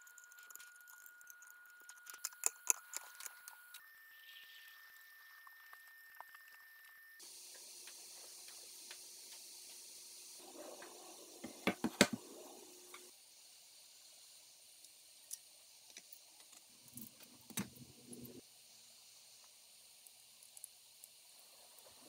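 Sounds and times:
steady hiss: 0:07.2 - 0:22.0.

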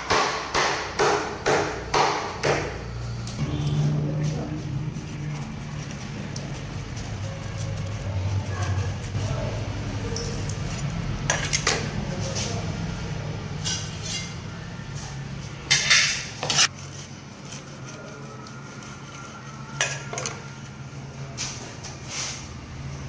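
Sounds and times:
steady low hum: 0:02.8 - 0:10.1.

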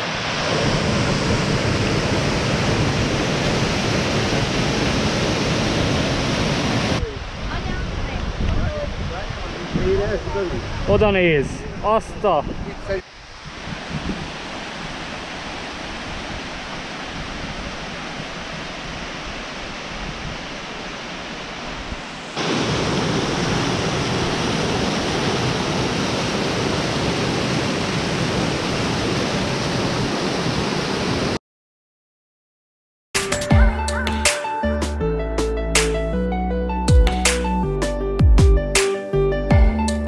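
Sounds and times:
waterfall rushing over rocks: 0:00.0 - 0:08.2, 0:13.0 - 0:31.4.

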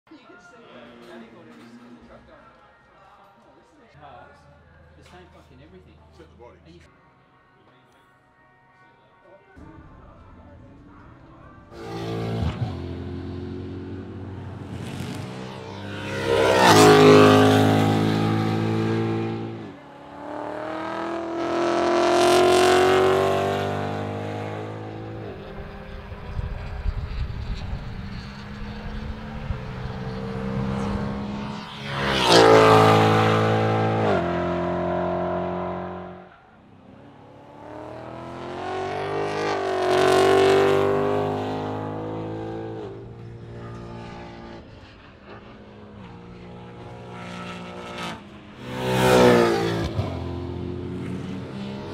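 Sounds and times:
race car driving past: 0:11.7 - 0:51.9.

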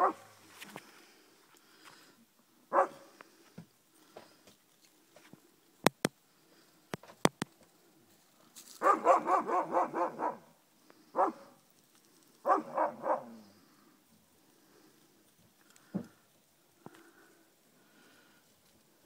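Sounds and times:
dogs barking: 0:00.0 - 0:00.3, 0:02.7 - 0:03.1, 0:08.8 - 0:10.5, 0:11.2 - 0:11.5, 0:12.4 - 0:13.5
sharp clicks: 0:05.8 - 0:06.1, 0:06.9 - 0:07.5.

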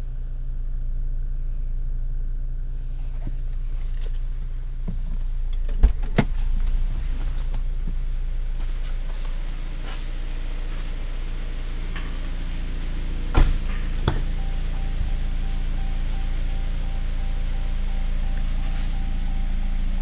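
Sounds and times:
car engine idling: 0:00.0 - 0:20.0
sharp thump: 0:13.3 - 0:14.3.

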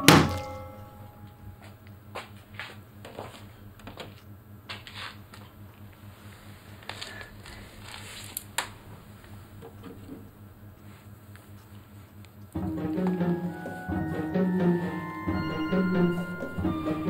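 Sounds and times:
low steady hum: 0:00.0 - 0:17.0
footsteps on concrete floor: 0:01.4 - 0:05.9
clothing rustle: 0:06.0 - 0:12.2.

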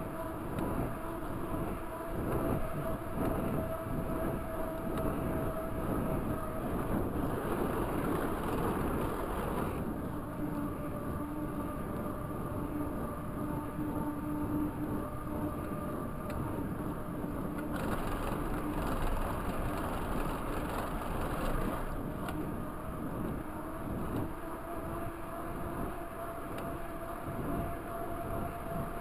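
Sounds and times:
wind on microphone: 0:00.0 - 0:29.0
bike tyres rolling on pavement: 0:00.4 - 0:10.2, 0:17.6 - 0:24.3.

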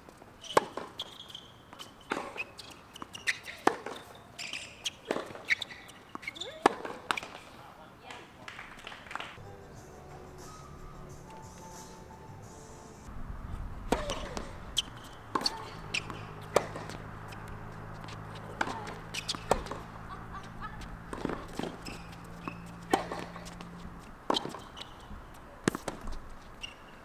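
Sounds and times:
tennis ball bouncing and struck: 0:00.4 - 0:07.4, 0:13.8 - 0:26.9
steady low hum: 0:09.4 - 0:24.3.

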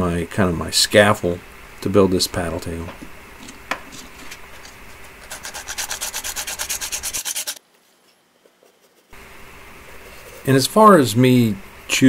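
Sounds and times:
sandpaper sanding by hand: 0:05.0 - 0:07.6.

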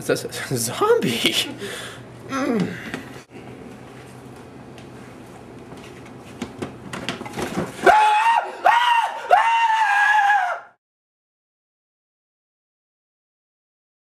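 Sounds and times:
person screaming: 0:07.8 - 0:10.8.

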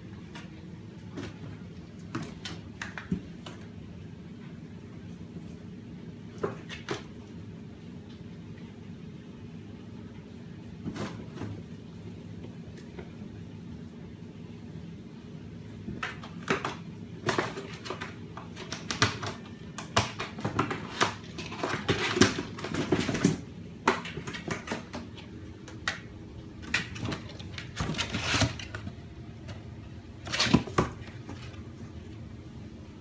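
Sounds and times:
kittens scratching cardboard: 0:16.0 - 0:32.3
steady low hum: 0:21.2 - 0:33.0
box shifting on tile floor: 0:26.7 - 0:29.0.

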